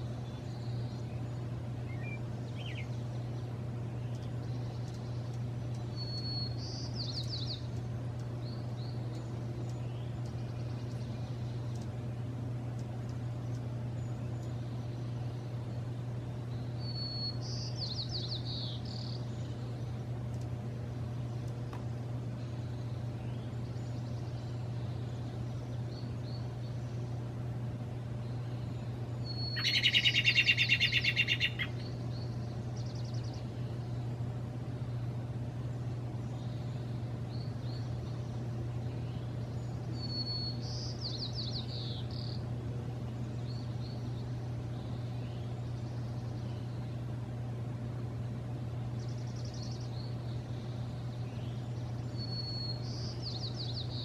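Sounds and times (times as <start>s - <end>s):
loud rapid bird trill: 0.0s - 3.5s, 5.9s - 7.7s, 16.6s - 19.7s, 28.4s - 33.8s, 36.4s - 42.5s, 48.9s - 54.0s
songbirds singing: 0.0s - 54.0s
steady low hum: 0.0s - 54.0s.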